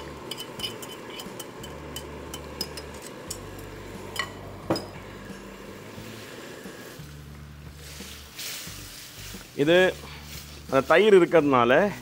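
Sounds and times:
utensil scraping metal bowl: 0:00.0 - 0:07.0.

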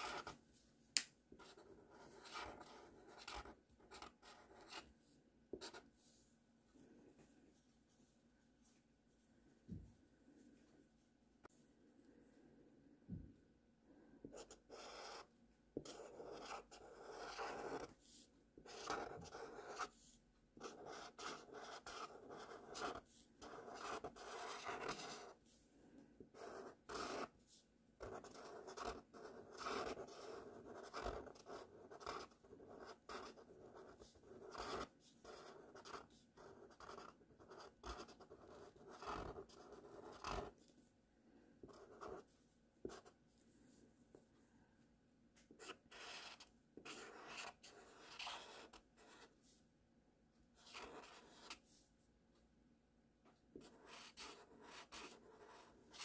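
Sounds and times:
marker scratching on paper: 0:00.0 - 0:00.4, 0:01.4 - 0:04.9, 0:14.3 - 0:25.4, 0:26.3 - 0:27.4, 0:28.0 - 0:40.6, 0:41.6 - 0:43.1, 0:45.5 - 0:49.3, 0:50.6 - 0:51.6, 0:53.6 - 0:56.0.

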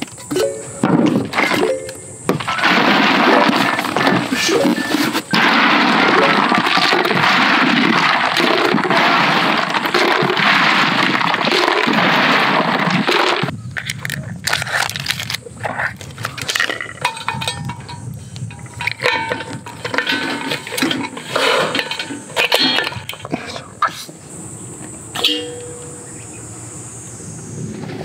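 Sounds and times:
ice cubes clattering into metal box: 0:00.2 - 0:15.4, 0:16.2 - 0:23.3.

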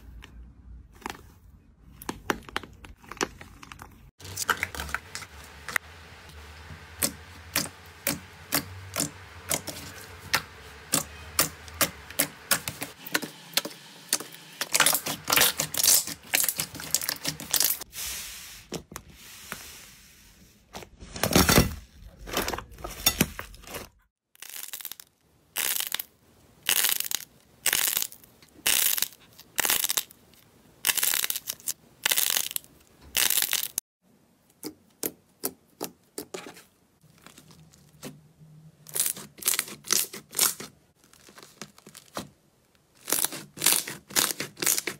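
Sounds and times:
slime squelching: 0:37.0 - 0:44.9.

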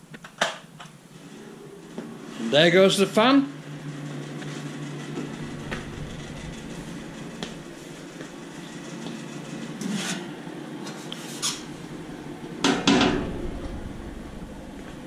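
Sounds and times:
welder cooling fan running: 0:01.0 - 0:15.0
metallic clunks and rattles: 0:11.6 - 0:15.0.

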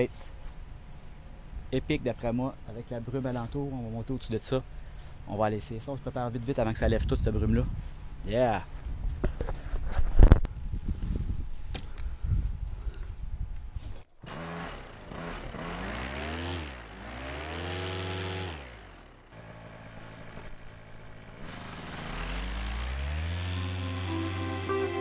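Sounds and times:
paramotor engine revving: 0:14.2 - 0:19.2, 0:21.4 - 0:24.1.

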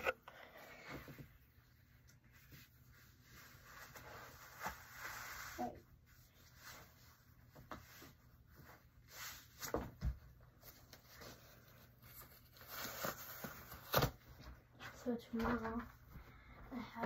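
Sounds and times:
faint rustling and handling: 0:00.0 - 0:17.0.

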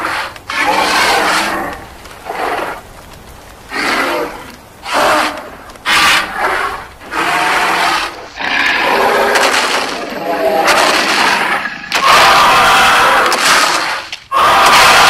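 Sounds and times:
dinosaur roars: 0:03.7 - 0:15.0.

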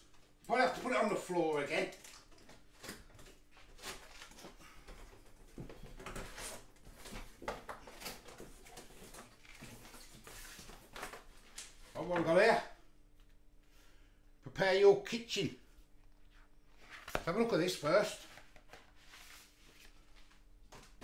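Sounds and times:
cardboard flaps rustling and scraping: 0:02.8 - 0:12.4.

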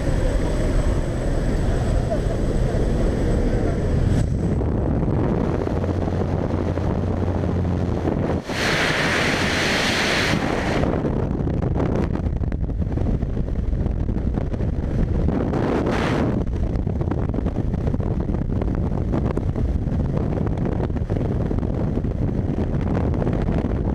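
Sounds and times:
freefall air rushing on microphone: 0:00.0 - 0:23.9
plane engine hum: 0:00.0 - 0:23.9
wind: 0:00.0 - 0:23.9
loud hiss: 0:08.4 - 0:10.8.

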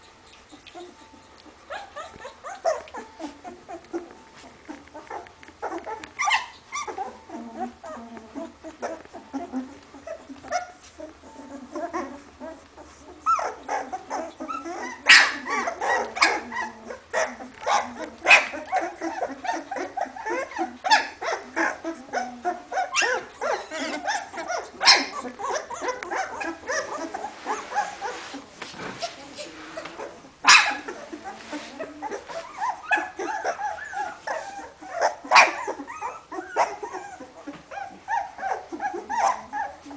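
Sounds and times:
puppies whining and squeaking: 0:00.0 - 0:39.9
puppy yelps: 0:05.1 - 0:08.0, 0:13.2 - 0:28.2, 0:30.0 - 0:31.1, 0:32.0 - 0:39.9.

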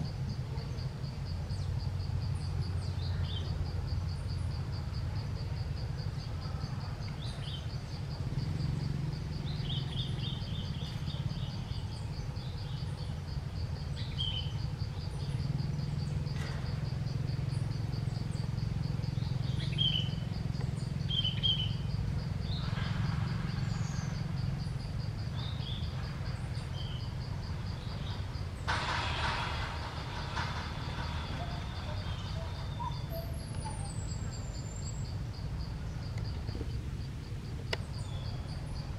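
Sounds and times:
insect trilling: 0:00.0 - 0:28.7, 0:29.7 - 0:38.9
low background rumble: 0:00.0 - 0:38.9
bird chirps: 0:06.0 - 0:22.9, 0:29.9 - 0:35.2.

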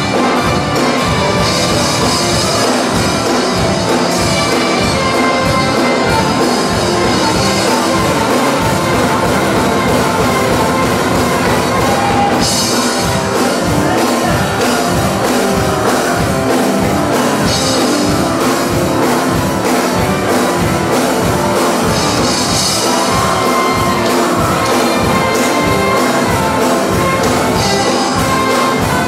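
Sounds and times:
drum kit beat: 0:00.0 - 0:29.0
live church band music: 0:00.0 - 0:29.0.

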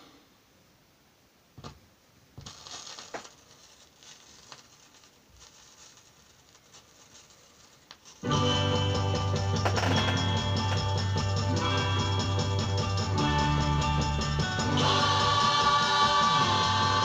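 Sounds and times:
record surface hiss and crackle: 0:00.0 - 0:17.0
music from record: 0:08.2 - 0:17.0.

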